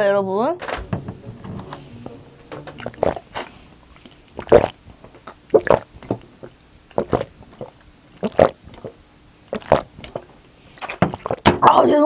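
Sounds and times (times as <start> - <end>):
person gulping drink: 2.7 - 11.5.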